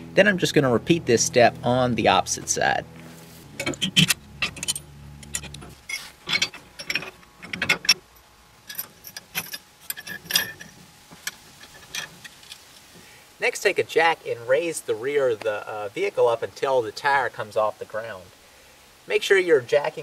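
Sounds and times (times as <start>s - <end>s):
metal parts clinking: 3.6s - 12.6s.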